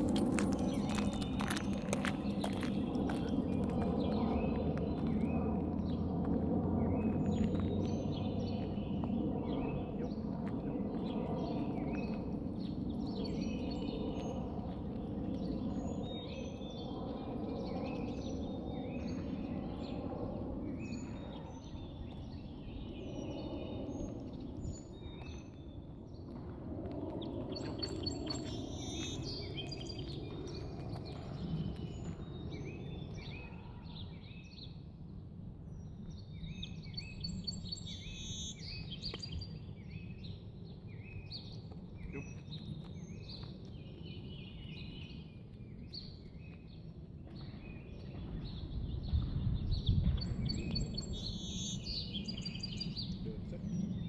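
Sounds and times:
birds chirping and singing: 35.8 - 54.0.

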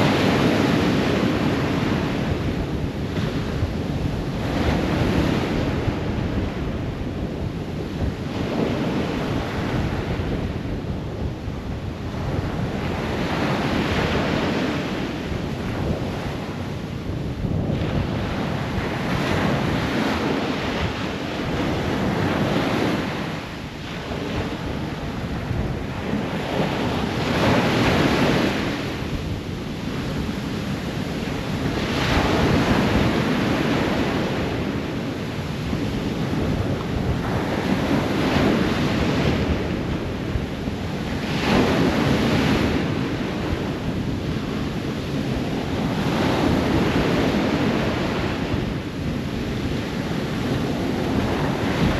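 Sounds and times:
ocean surf breaking: 11.4 - 51.9.

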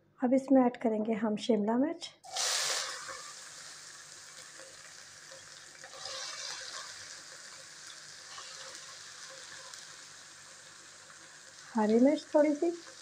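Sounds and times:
pepper sizzling in hot oil: 2.2 - 13.0.

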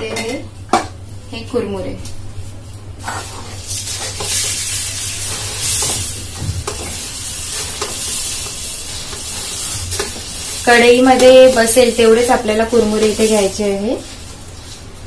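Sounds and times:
puffed rice sizzling in hot oil: 3.0 - 14.9.

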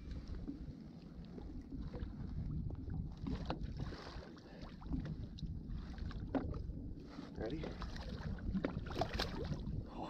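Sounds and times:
water lapping against boat hull: 0.0 - 10.0
wind buffeting microphone: 0.0 - 10.0.

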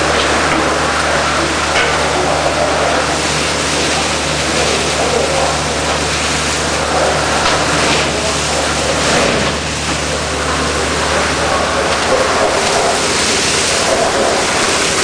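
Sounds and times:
low drone: 6.6 - 15.0.

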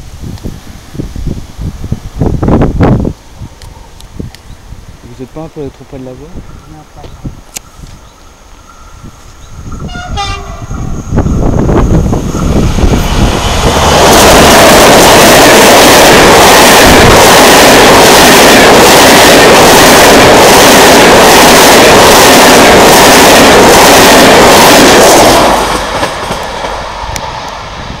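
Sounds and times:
train passing with wheel clatter: 0.4 - 28.0
train horn blast: 9.8 - 10.8.

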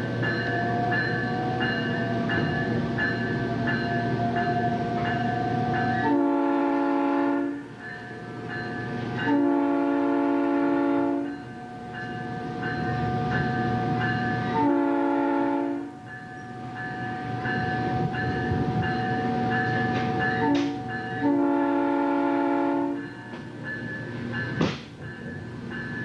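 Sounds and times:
train running noise: 0.0 - 26.0
train air horn blasts: 3.4 - 7.8, 9.2 - 23.5.

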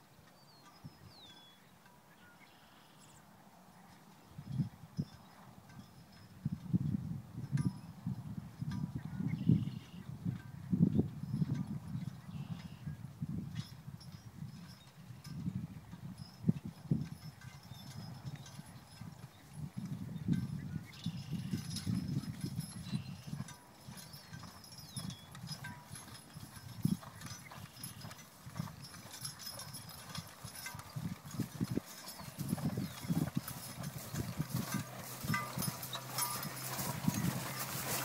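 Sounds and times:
horse hoofbeats: 16.2 - 38.0
harness sounds: 21.0 - 38.0.

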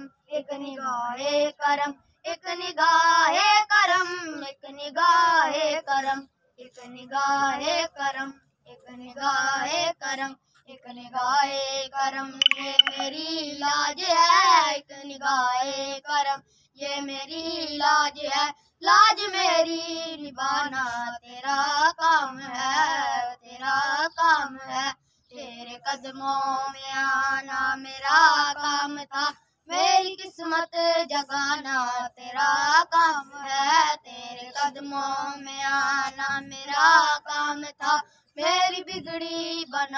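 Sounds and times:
person singing devotional song: 0.0 - 39.9
breaths: 16.4 - 16.8, 25.0 - 25.3, 38.0 - 38.4.

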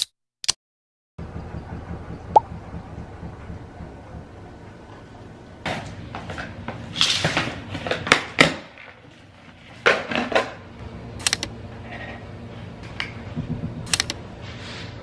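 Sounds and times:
sharp clicks: 11.2 - 11.5, 13.8 - 14.2
scissors cutting packing tape: 13.9 - 14.2.

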